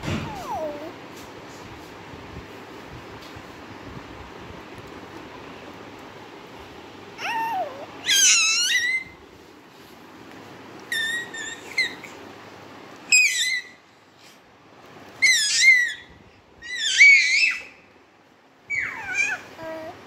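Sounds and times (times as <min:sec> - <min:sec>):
baby squealing: 0:07.2 - 0:09.2, 0:10.9 - 0:12.2, 0:13.1 - 0:13.8, 0:15.2 - 0:17.8, 0:18.7 - 0:19.9.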